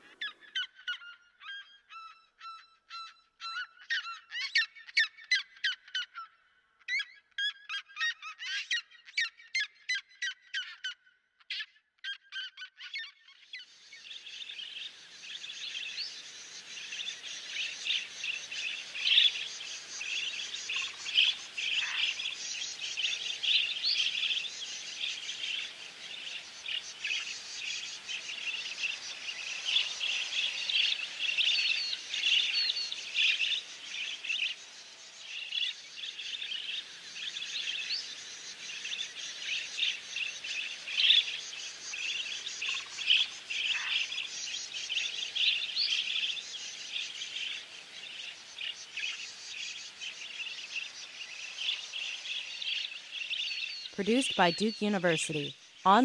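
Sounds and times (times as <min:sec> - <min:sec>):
birds chirping: 0:14.0 - 0:56.0.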